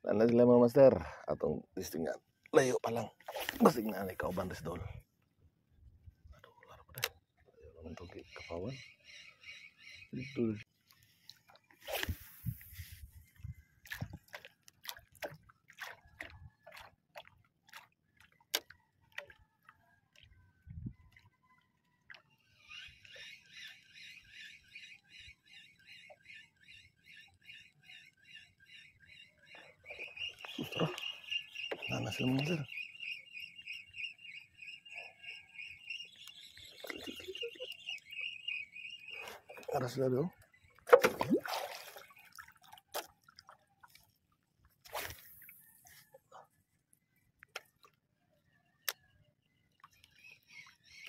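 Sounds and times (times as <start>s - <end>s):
water slapping and dripping: 13.8s - 20.4s, 40.8s - 44.1s.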